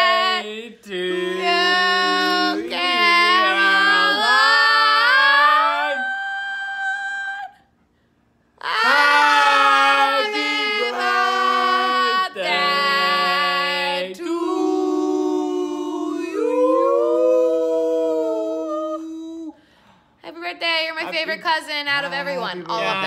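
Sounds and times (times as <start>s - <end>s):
people singing unaccompanied: 0.0s - 7.3s, 8.7s - 17.0s.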